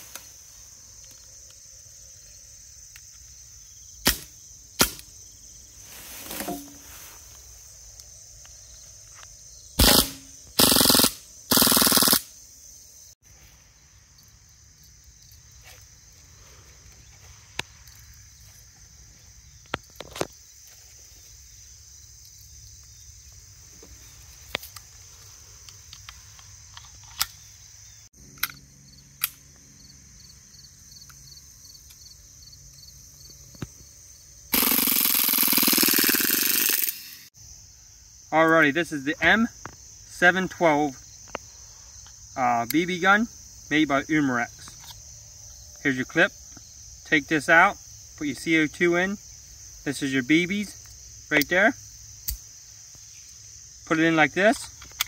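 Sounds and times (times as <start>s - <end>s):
insects chirring: 0.0s - 55.0s
bb pistol firing bursts: 9.8s - 12.3s, 34.6s - 36.9s
magazine handling clicks: 28.3s - 28.6s.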